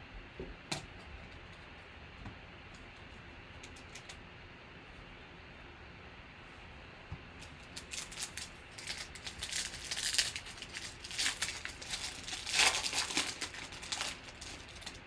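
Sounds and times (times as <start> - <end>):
foil wrapper crinkling: 7.5 - 15.0
foil wrapper ripping: 7.6 - 15.0.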